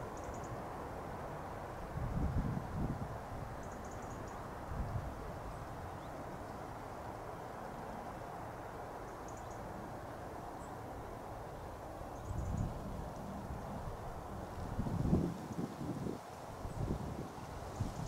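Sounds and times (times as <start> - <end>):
wind buffeting microphone: 2.0 - 3.5, 12.2 - 18.0.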